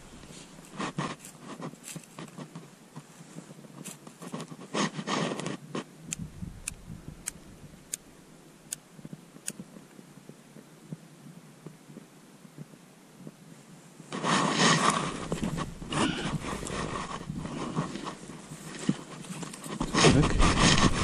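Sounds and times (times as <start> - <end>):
clothing and gear rustling: 0.0 - 5.9, 13.8 - 21.0.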